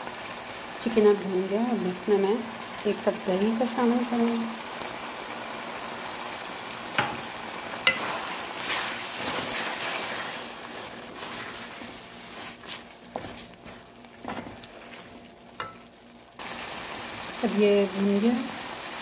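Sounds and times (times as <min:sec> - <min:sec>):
chicken sizzling in hot oil: 0:00.0 - 0:19.0
spoon knocking against pan: 0:07.0 - 0:07.2
wooden spoon stirring: 0:07.0 - 0:15.9.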